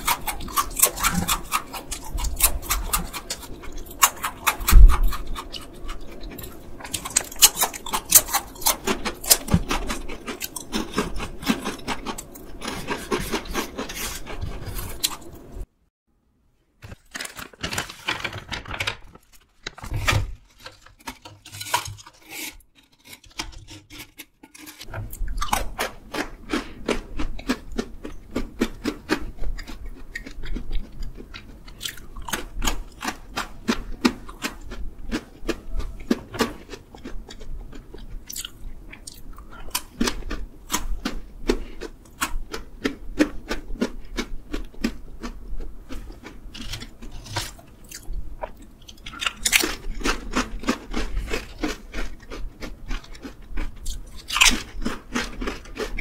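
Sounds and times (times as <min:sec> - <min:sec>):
crunching and chewing pretzels: 0:00.0 - 0:15.7, 0:16.8 - 0:56.0
snack bag rustling: 0:16.8 - 0:27.9, 0:49.0 - 0:56.0.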